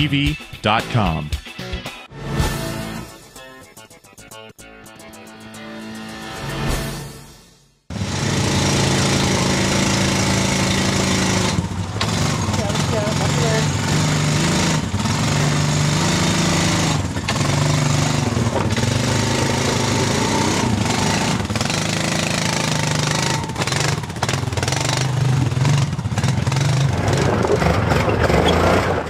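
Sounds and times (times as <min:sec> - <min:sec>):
atv engine revving: 0:07.9 - 0:29.0.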